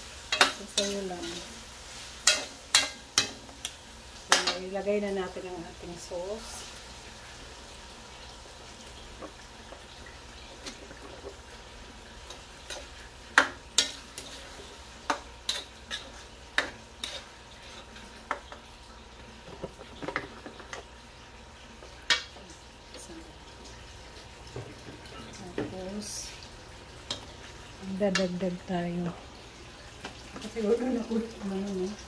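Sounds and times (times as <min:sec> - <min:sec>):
faint sizzle: 0:00.0 - 0:32.0
spatula scraping a metal pan: 0:15.5 - 0:18.0.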